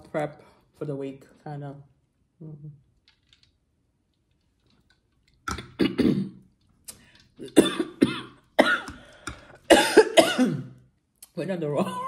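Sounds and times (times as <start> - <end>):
woman coughing: 5.8 - 6.4, 7.4 - 8.9, 9.7 - 10.8.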